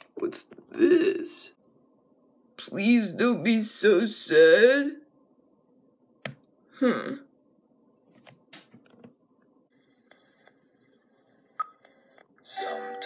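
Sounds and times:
online video from laptop speakers: 9.7 - 13.0.

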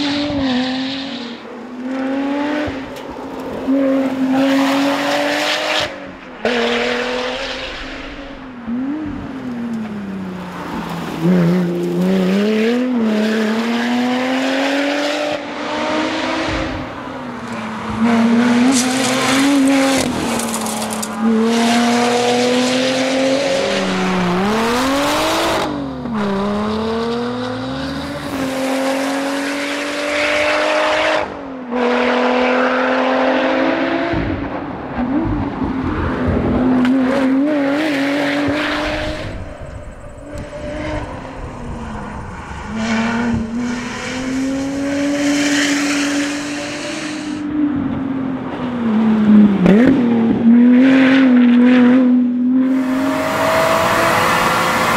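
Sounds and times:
car engine revving: 11.0 - 48.0, 49.0 - 54.9.

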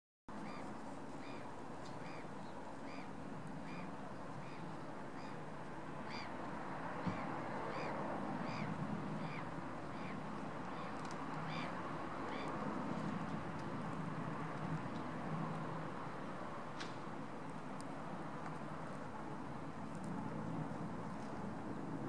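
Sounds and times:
bird calling: 0.4 - 5.4, 6.1 - 6.3, 7.0 - 12.6
distant jet engines rumbling: 0.4 - 22.0.

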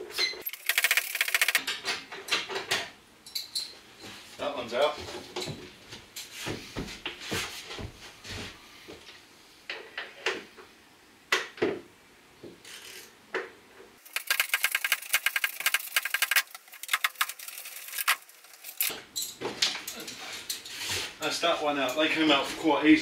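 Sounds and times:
ratchet clicking: 0.4 - 1.6, 14.0 - 18.9.

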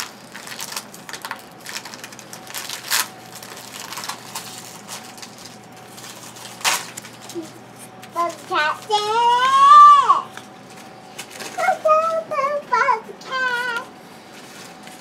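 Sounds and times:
card pack crinkling and rustling: 0.0 - 8.9, 10.3 - 12.2.

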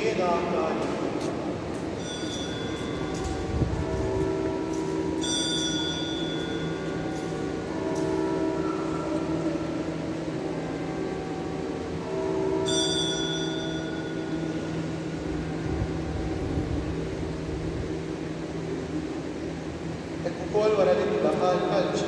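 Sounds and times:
small bell ringing: 2.0 - 3.6, 4.7 - 8.8.

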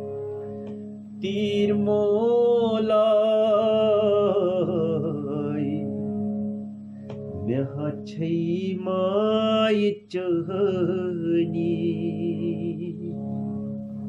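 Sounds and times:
harmonium drone: 0.0 - 14.0
man singing a held note: 7.4 - 13.2.

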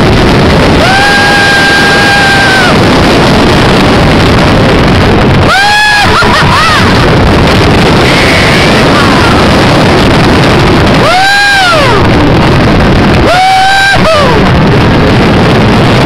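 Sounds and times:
roller coaster rumbling on track: 0.0 - 16.0
wind rushing on microphone: 0.0 - 16.0
riders whooping: 0.4 - 4.2, 5.1 - 15.3
riders screaming: 0.7 - 3.0, 5.4 - 9.6, 10.9 - 12.3, 13.1 - 14.6.

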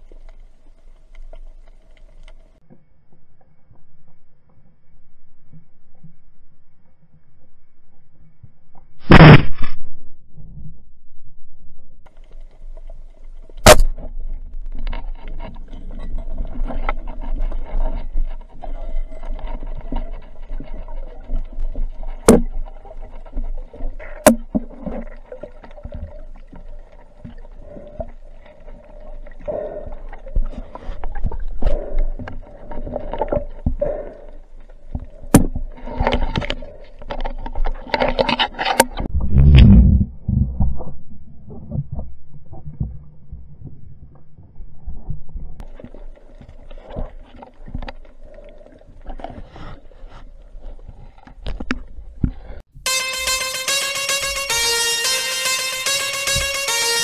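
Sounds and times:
faint clicking and crackling in water: 0.0 - 9.0, 12.1 - 39.1, 41.5 - 52.7
sharp underwater crack: 9.0 - 9.9, 13.6 - 14.1
underwater swishing: 12.1 - 52.7
low underwater rumble: 39.0 - 46.6.

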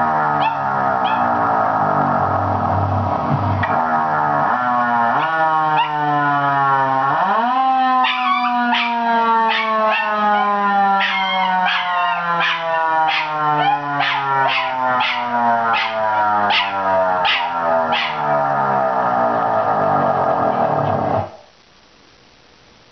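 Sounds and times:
siren wailing: 0.0 - 21.4
dog howling and yipping: 0.1 - 1.4, 4.5 - 6.6, 7.2 - 18.8.

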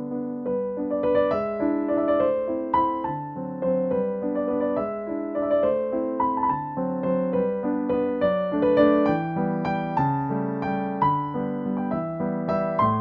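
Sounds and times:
gentle piano piece: 0.0 - 13.0.

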